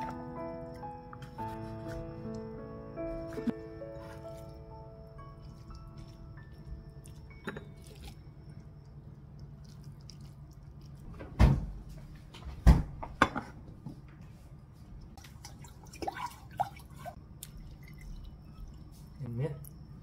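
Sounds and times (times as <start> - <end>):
broth splashing and dripping: 5.2 - 11.2, 15.1 - 19.2.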